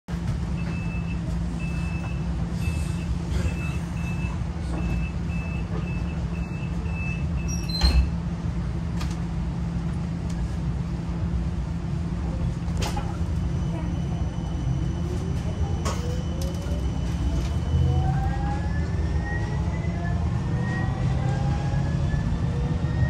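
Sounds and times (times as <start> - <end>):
low hum of tram: 0.1 - 23.0
door warning beeps: 0.6 - 8.1.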